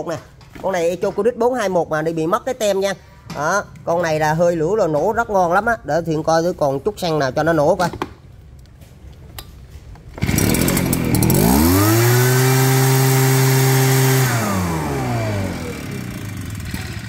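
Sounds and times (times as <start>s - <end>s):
two-stroke engine revving: 10.2s - 17.0s.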